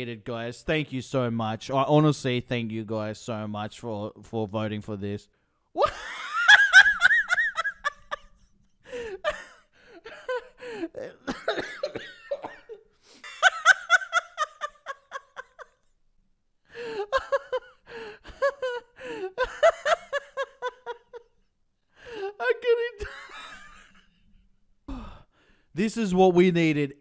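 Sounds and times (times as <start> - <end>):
man laughing: 5.8 - 15.9, 16.8 - 21.5, 22.2 - 24.1.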